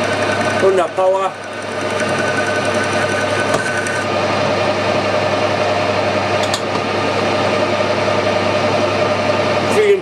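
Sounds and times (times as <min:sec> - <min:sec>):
boring bar cutting metal: 0:00.0 - 0:04.1
lathe gear whine: 0:00.0 - 0:10.0.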